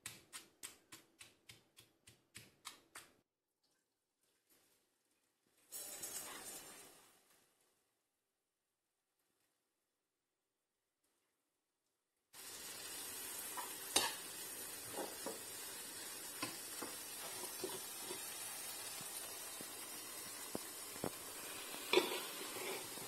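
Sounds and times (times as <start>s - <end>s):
metal spatula scraping a pan: 5.7s - 7.0s, 13.5s - 15.3s, 17.1s - 18.5s, 21.5s - 23.0s
food sizzling in oil: 5.8s - 7.2s, 12.4s - 23.0s.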